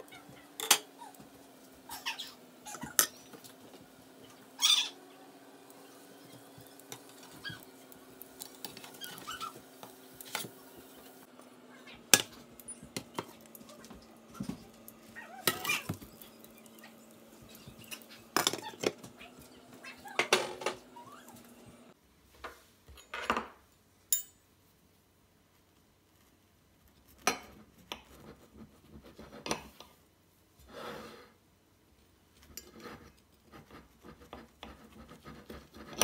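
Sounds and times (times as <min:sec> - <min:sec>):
kitchenware clattering: 0:00.4 - 0:01.0, 0:02.7 - 0:03.5, 0:12.1 - 0:19.3, 0:20.0 - 0:21.0.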